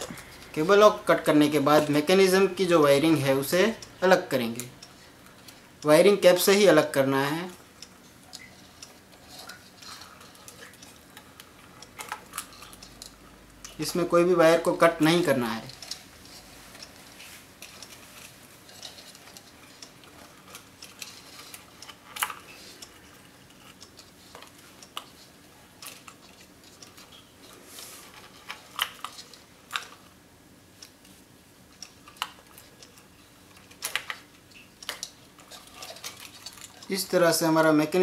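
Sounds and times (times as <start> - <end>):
wire connectors clicking: 31.8 - 37.1.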